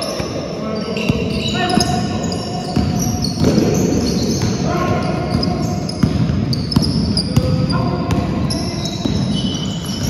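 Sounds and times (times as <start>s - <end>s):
shoes squeaking on court: 0.0s - 10.0s
basketball bouncing: 2.7s - 4.6s, 5.2s - 10.0s.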